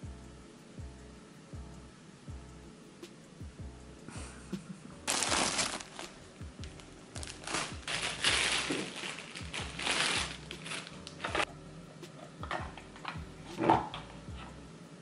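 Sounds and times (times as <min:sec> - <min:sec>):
plastic bread bag rustling: 0:05.1 - 0:11.5.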